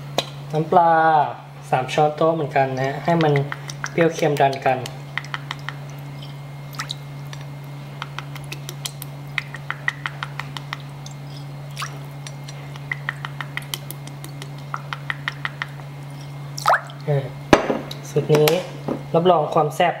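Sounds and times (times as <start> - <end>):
steady low hum: 0.0 - 20.0
liquid dripping into glass bowl: 3.1 - 17.1.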